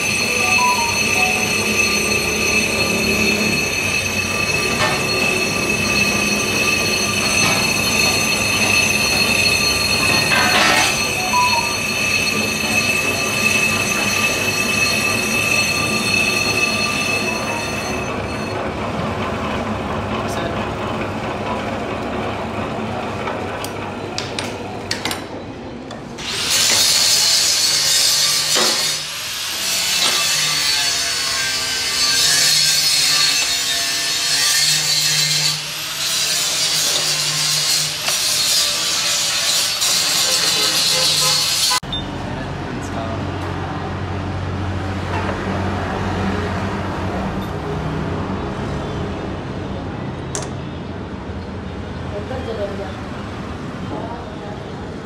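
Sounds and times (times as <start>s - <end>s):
high-pitched ringing: 0.0s - 18.7s
lathe cutting brake disc: 0.0s - 20.1s, 26.2s - 41.8s.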